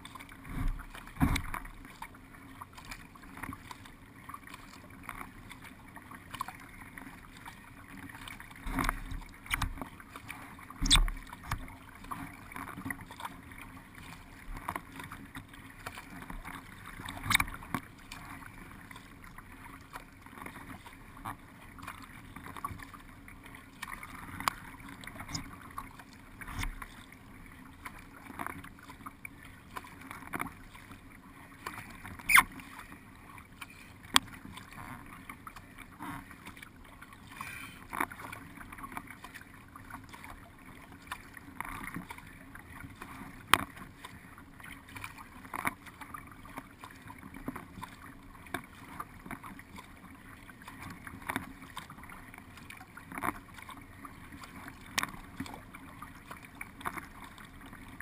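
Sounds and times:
paddle stroke splashes: 0:00.0 - 0:58.0
water lapping along boat hull: 0:00.0 - 0:58.0.

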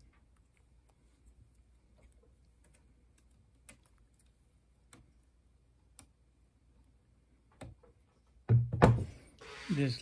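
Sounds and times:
handling knock and thud: 0:08.4 - 0:09.3.

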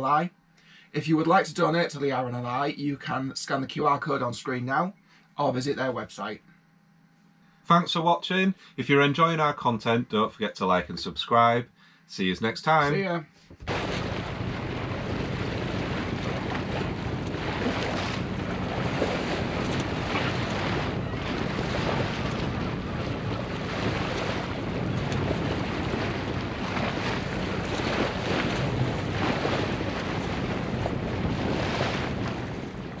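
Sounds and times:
steady low hum: 0:00.0 - 0:33.0
water washing past boat hull: 0:13.6 - 0:33.0
wind buffeting microphone: 0:13.6 - 0:33.0.

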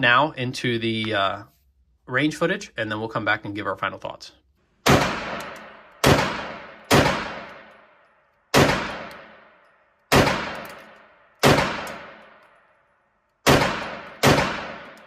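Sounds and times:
pistol shots echoing: 0:04.8 - 0:12.4, 0:13.4 - 0:15.0.

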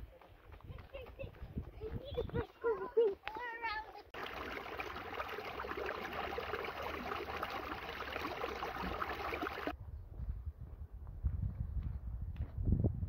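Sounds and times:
creek trickling over rocks: 0:04.1 - 0:09.7.

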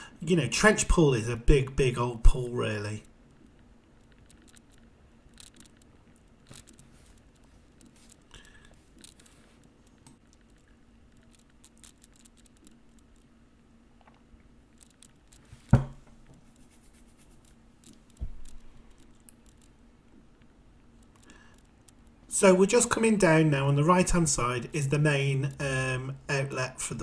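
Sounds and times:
dull thump: 0:15.7 - 0:16.1.

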